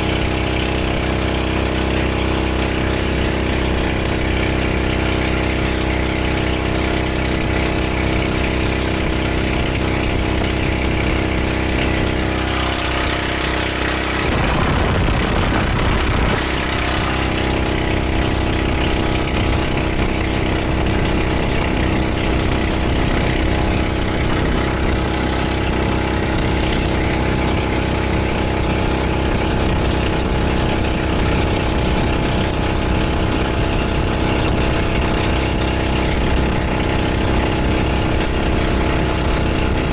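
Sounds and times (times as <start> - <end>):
boat engine running: 0.0 - 39.9
rush of noise: 9.2 - 28.6.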